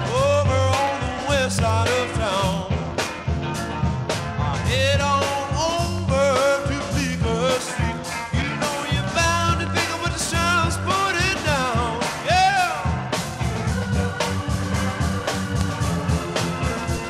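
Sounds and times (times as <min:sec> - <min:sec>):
person singing: 0:00.0 - 0:02.8, 0:04.5 - 0:13.2
drums beating fast: 0:00.0 - 0:17.0
rock and roll band playing: 0:00.0 - 0:17.0.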